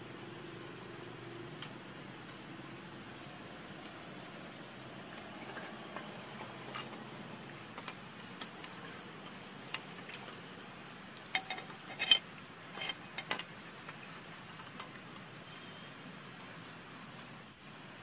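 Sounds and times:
steady hiss: 0:00.0 - 0:18.0
faint high-pitched tone: 0:15.4 - 0:16.1.

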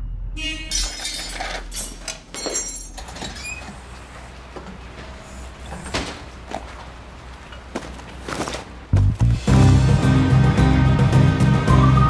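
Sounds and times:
door squeak: 0:00.7 - 0:03.8
loud door clunk: 0:05.7 - 0:06.3.

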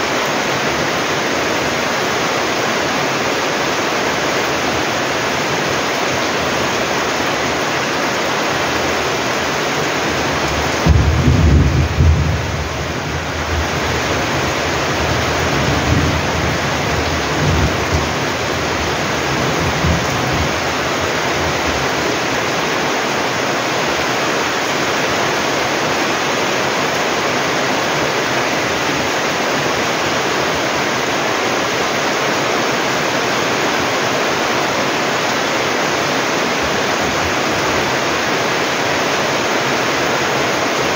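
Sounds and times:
heavy rain pouring: 0:00.0 - 0:40.9
thunder rumbling: 0:10.2 - 0:22.3.

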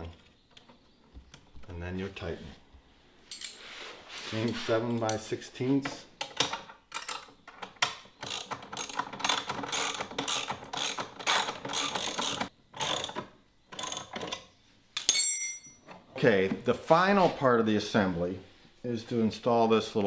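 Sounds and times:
ratchet wrench clicking: 0:08.2 - 0:13.2
short metallic ring: 0:15.1 - 0:15.9.

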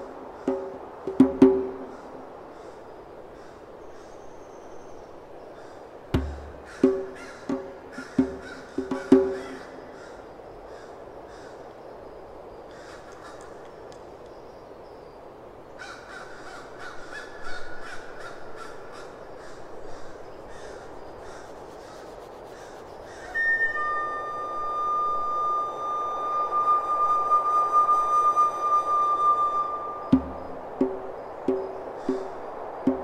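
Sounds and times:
high flute-like tone: 0:23.2 - 0:30.6.

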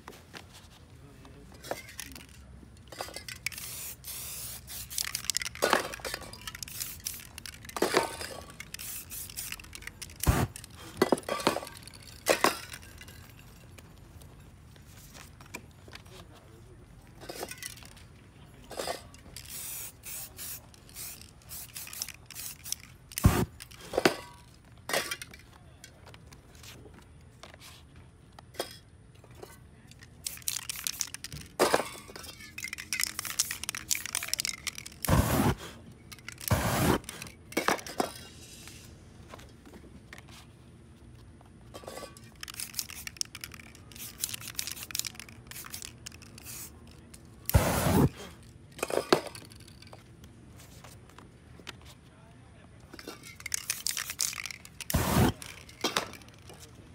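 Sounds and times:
spray paint can hissing: 0:03.3 - 0:10.8, 0:19.4 - 0:23.8, 0:30.2 - 0:31.4, 0:32.6 - 0:37.3, 0:42.4 - 0:46.8, 0:47.5 - 0:48.2, 0:53.4 - 0:56.4.

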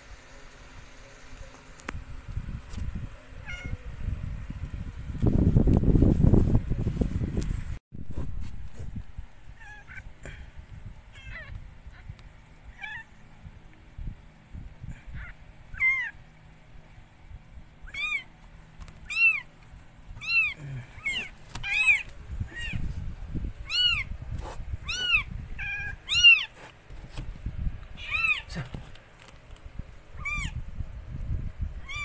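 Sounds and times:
kitten mewing: 0:03.4 - 0:03.9, 0:15.1 - 0:16.2, 0:20.2 - 0:22.9, 0:24.8 - 0:26.5, 0:28.0 - 0:28.8, 0:30.2 - 0:30.6
rustling of handling: 0:06.0 - 0:09.3, 0:26.0 - 0:27.9.

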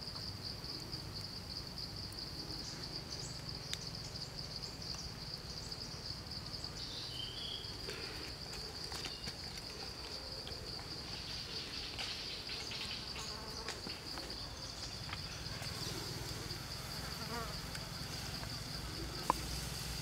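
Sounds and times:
insects droning: 0:00.0 - 0:20.0.

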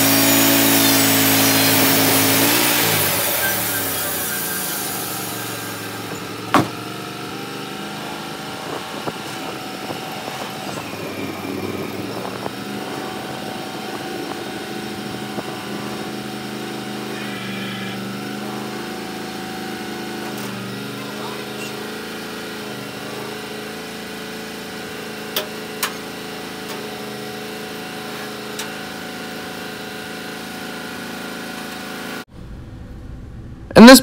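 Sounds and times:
saw blade cutting hiss: 0:00.0 - 0:06.4
sawmill engine running: 0:00.0 - 0:34.0.

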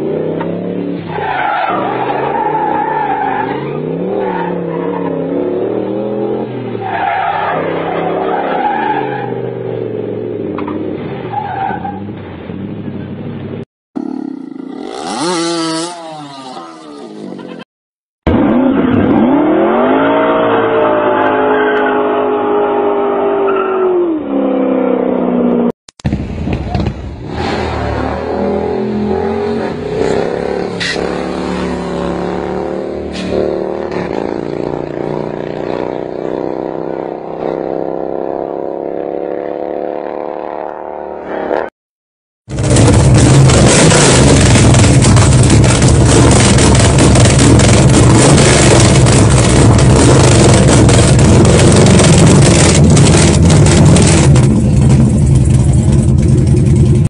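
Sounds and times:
motorcycle engine revving: 0:14.0 - 0:17.6, 0:26.7 - 0:41.7, 0:42.5 - 0:57.0.

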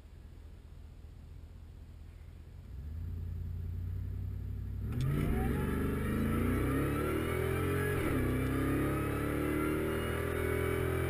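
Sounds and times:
truck engine accelerating: 0:02.6 - 0:11.0.

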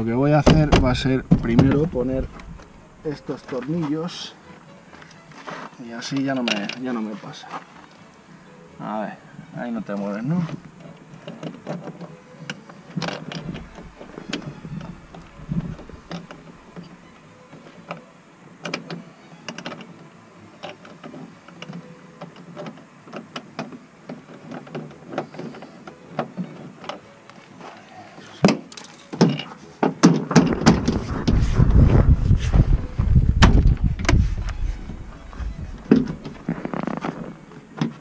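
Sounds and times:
sharp knocks: 0:00.4 - 0:01.9
loud low rumbling: 0:30.9 - 0:37.4.

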